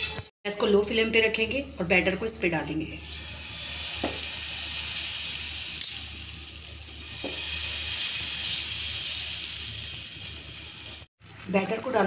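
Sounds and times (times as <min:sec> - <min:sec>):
batter sizzling in a pan: 0:03.0 - 0:12.0.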